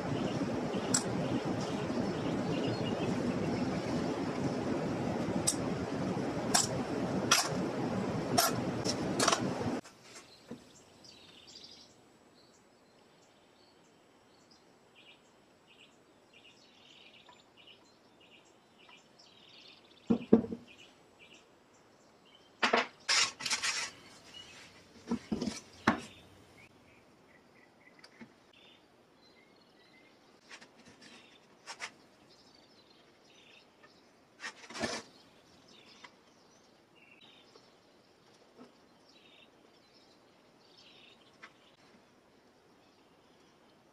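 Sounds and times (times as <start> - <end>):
steady rushing noise: 0.0 - 9.8.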